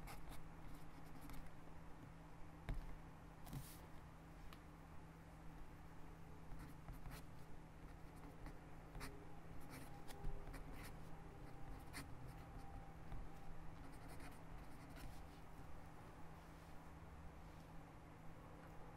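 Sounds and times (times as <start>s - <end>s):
faint low hum: 0.0s - 18.9s
pen scratching on paper: 6.6s - 7.3s, 7.9s - 11.0s, 11.7s - 12.1s, 13.8s - 15.2s.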